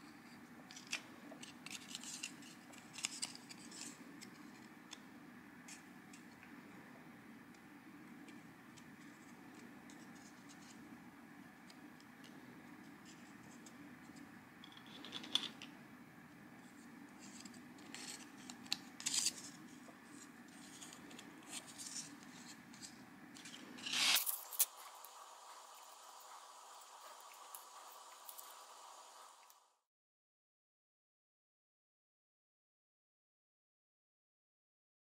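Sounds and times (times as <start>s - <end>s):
steady low hum: 0.0s - 29.8s
paper rustling: 17.2s - 25.2s.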